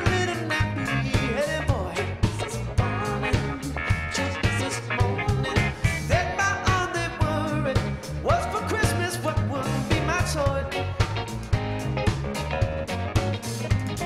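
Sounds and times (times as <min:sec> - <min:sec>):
gliding lead melody: 0:00.0 - 0:14.0
live band playing upbeat groove: 0:00.0 - 0:14.0.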